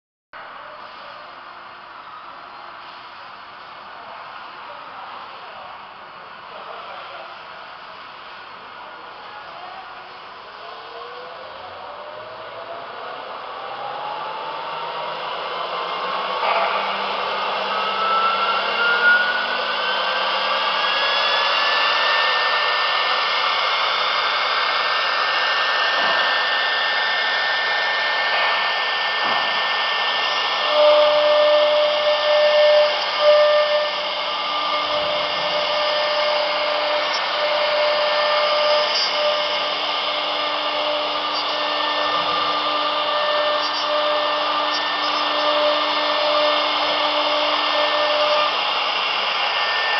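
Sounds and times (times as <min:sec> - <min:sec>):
router spindle whine: 0:03.8 - 0:49.9
router cutting grooves in wood: 0:12.7 - 0:49.9.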